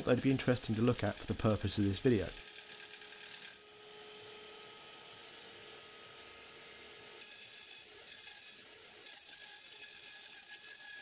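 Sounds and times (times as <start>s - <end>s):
router running: 0.0s - 11.0s
power drill running: 2.3s - 11.0s.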